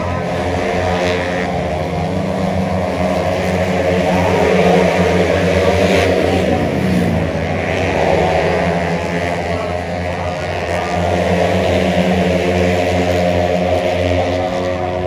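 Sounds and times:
racing scooters passing: 0.0 - 15.0
steady low hum: 0.0 - 15.0.

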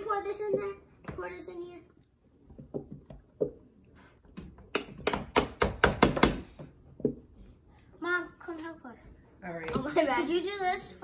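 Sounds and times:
plastic glue bottles knocking on tub: 4.9 - 6.4.

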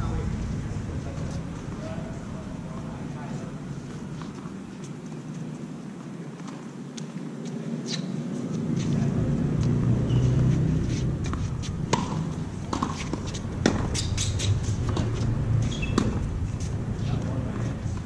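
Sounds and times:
steady low rumble: 0.0 - 6.3, 8.5 - 18.0
tennis balls struck and bouncing: 9.6 - 16.7.

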